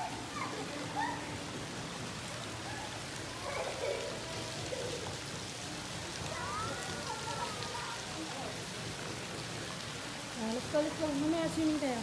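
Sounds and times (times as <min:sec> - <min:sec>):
faint voices: 0:00.0 - 0:12.0
water splashing in pool: 0:00.0 - 0:12.0.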